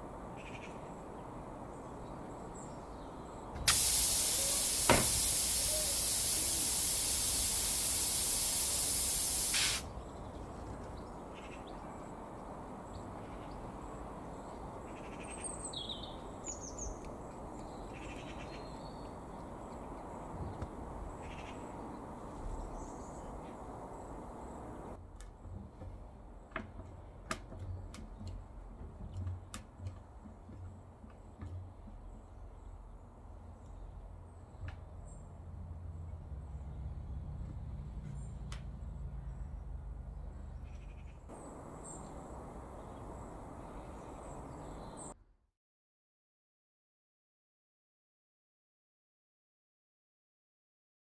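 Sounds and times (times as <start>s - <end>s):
air hissing out of tyre: 3.7s - 9.9s.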